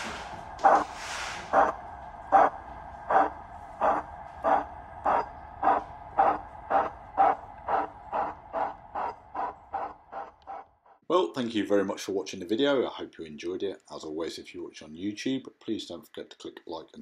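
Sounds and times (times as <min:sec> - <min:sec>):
steam locomotive exhaust chuffs: 0:00.0 - 0:11.0.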